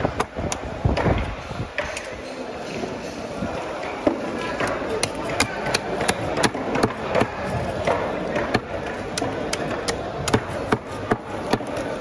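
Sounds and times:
fish market background hum: 0.0s - 12.0s
knives chopping on wooden blocks: 4.0s - 11.9s.

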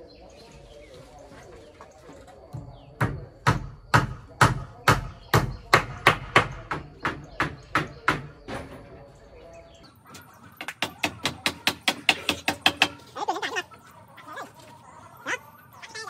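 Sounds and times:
hammer nailing wood: 3.0s - 8.4s, 10.6s - 13.0s.

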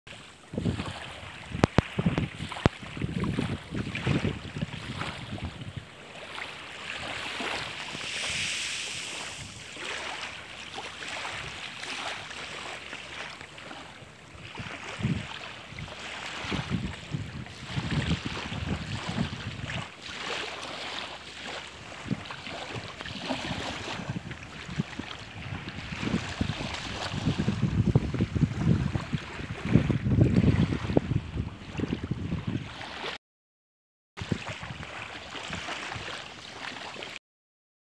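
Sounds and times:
small waves washing on beach: 0.1s - 33.2s, 34.2s - 37.2s
wind buffeting microphone: 0.4s - 9.8s, 14.0s - 20.4s, 21.5s - 33.1s, 34.2s - 36.2s.

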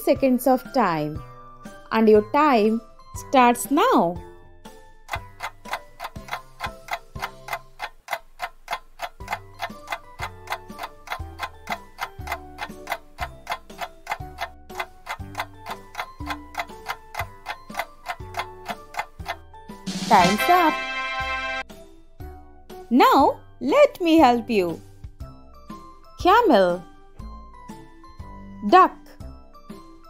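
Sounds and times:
clock-like ticking: 5.0s - 21.6s
looping tune with bass: 9.1s - 21.6s.

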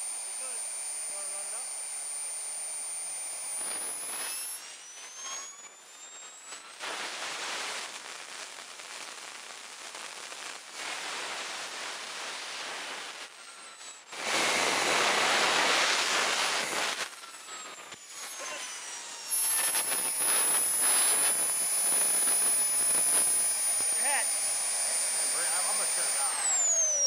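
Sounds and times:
jet turbine running: 0.0s - 5.8s, 14.1s - 27.0s
high whine sliding in pitch: 0.0s - 7.8s, 13.4s - 27.0s.

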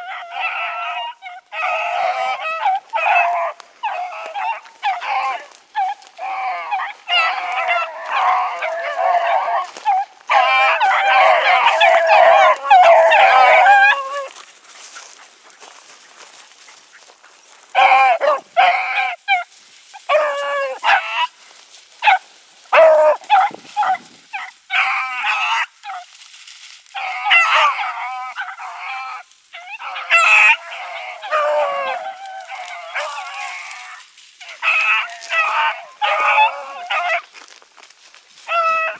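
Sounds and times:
hounds baying: 0.0s - 26.2s, 26.8s - 38.9s.

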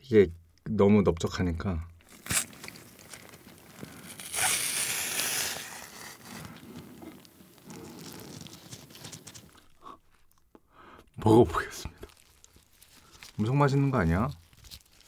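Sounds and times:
wet cabbage being torn and squished: 2.0s - 10.5s, 11.1s - 15.0s
squelching and rustling: 2.1s - 10.4s, 12.0s - 15.0s.

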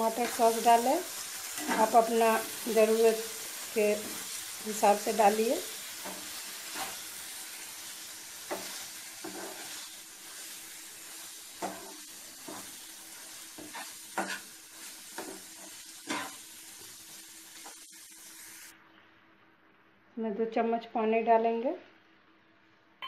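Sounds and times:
food sizzling in a frying pan: 0.0s - 18.7s
spatula scraping a pan: 5.8s - 17.9s.

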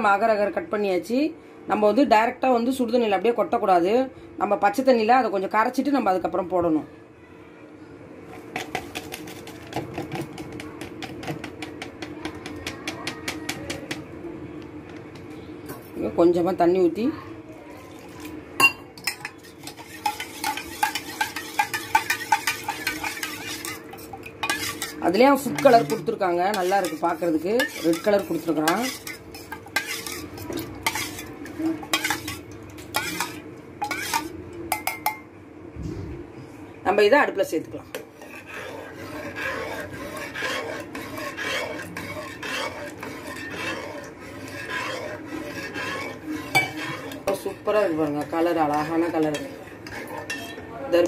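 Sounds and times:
spoon stirring in metal tumbler: 8.3s - 14.1s, 17.9s - 35.2s, 37.9s - 51.0s.

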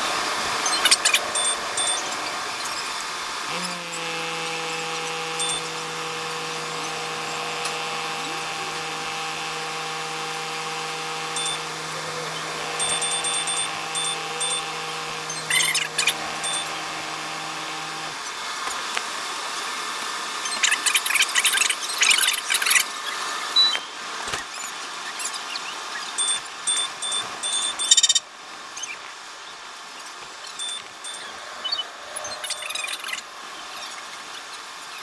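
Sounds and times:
electrical hum: 0.0s - 34.9s
short high beeps: 0.6s - 2.1s, 5.4s - 5.7s, 11.4s - 11.7s, 12.8s - 16.8s, 20.5s - 21.0s, 23.6s - 24.0s, 26.2s - 28.2s, 30.6s - 33.1s.

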